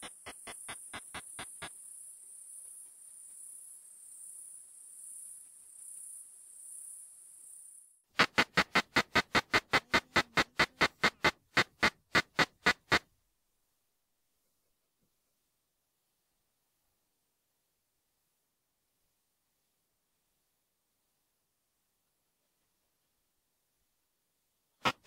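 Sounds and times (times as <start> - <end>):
katydid song pulses: 0.0 - 2.5, 8.2 - 13.0.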